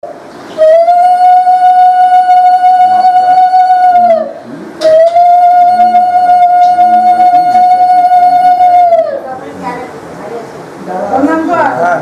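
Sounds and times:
conch shell blown: 0.6 - 9.1.

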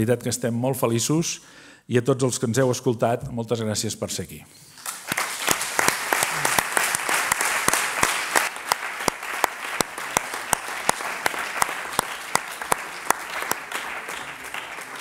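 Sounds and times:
audience applauding: 4.8 - 15.0
close distinct hand claps: 4.8 - 15.0.

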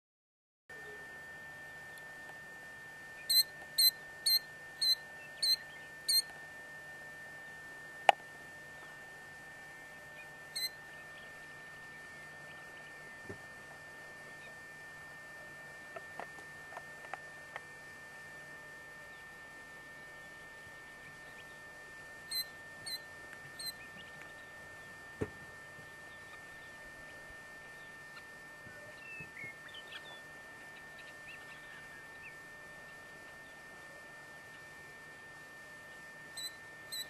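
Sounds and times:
high whine: 0.7 - 6.4, 7.1 - 16.7, 20.2 - 27.9
faint bird chirps: 3.2 - 6.3, 10.2 - 11.4, 36.4 - 37.0.

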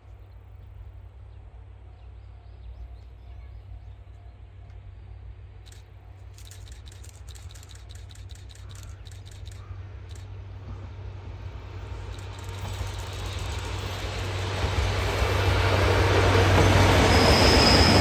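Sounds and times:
distant locomotive rumble: 0.0 - 18.0
rapid sharp clicks: 5.6 - 10.4, 11.8 - 14.4.

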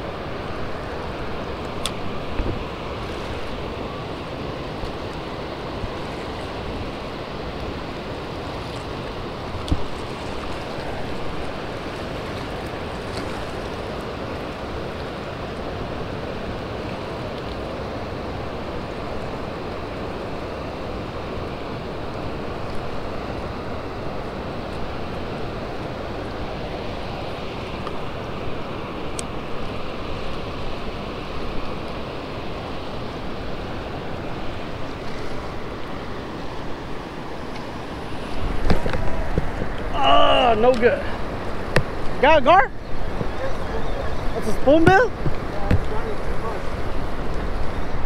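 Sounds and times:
water roaring through spillway: 0.0 - 48.0.

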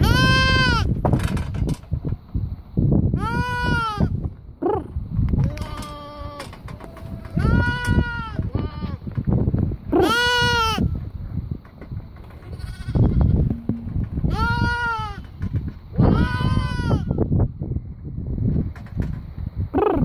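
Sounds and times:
lambs bleating: 0.0 - 0.9, 7.4 - 9.0, 10.0 - 10.8, 12.6 - 13.7, 14.3 - 15.2, 16.0 - 17.1.

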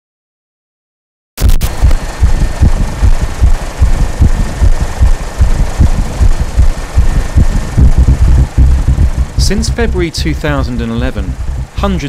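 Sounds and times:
helicopter engine and rotor hiss: 1.6 - 12.0
wind buffeting microphone: 1.8 - 9.9, 11.3 - 11.8.

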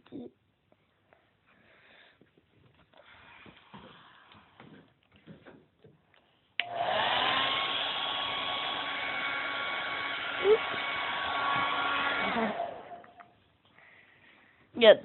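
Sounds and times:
hair dryer running: 6.6 - 13.2.

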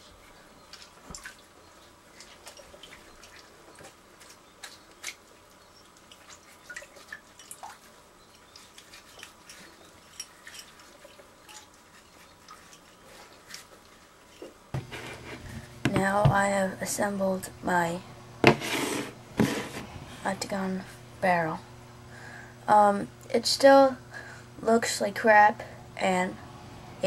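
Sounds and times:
water dripping in a sink: 5.0 - 11.8.

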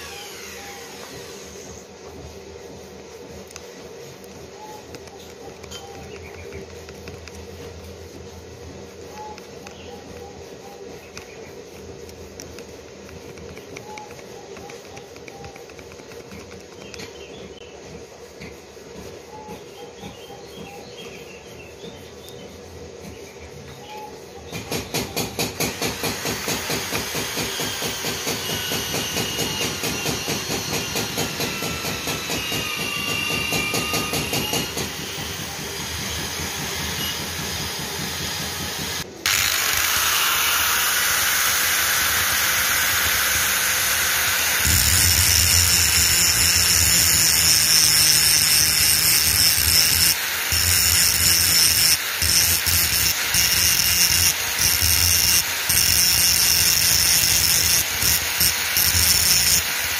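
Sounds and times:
angle grinder with wire wheel: 0.0 - 1.9, 25.6 - 59.9
steady hiss: 38.9 - 59.9.

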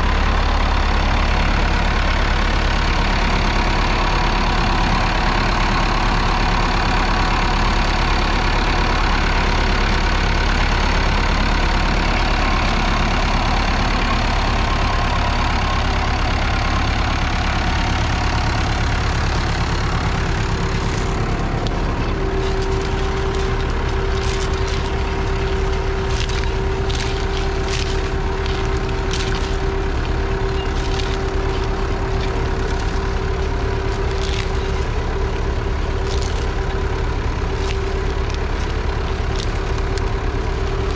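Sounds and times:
diesel tractor engine running: 0.0 - 40.9
steady whine: 8.6 - 40.9.

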